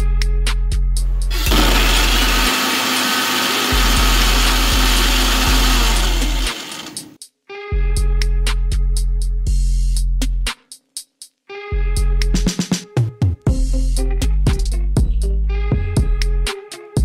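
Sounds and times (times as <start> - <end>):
background music with steady beat: 0.0 - 2.2, 3.4 - 17.0
electric mixer grinder running: 1.3 - 7.2.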